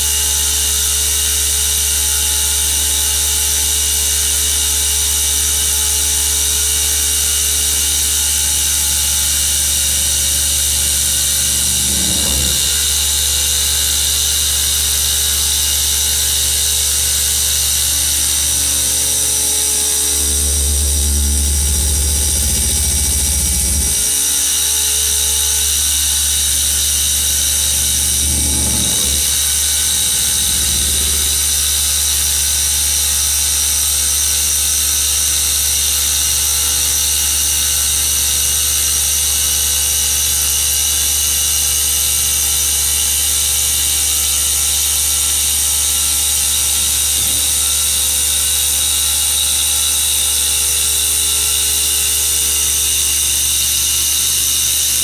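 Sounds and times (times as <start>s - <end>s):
cnc spindle whining: 6.7s - 42.6s
tool cutting stone: 8.0s - 15.4s, 22.2s - 34.8s.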